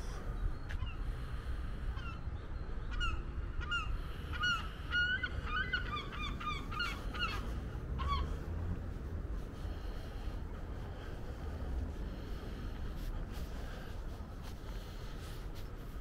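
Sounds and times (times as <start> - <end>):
birds calling: 0.0 - 8.8
steady low rumble: 0.0 - 16.0.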